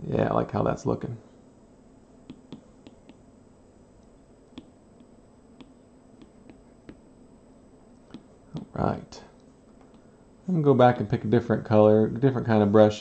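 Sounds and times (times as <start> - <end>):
faint steady hum: 0.0 - 13.0
stylus tapping on glass screen: 2.3 - 3.2, 4.5 - 7.1, 8.1 - 8.7.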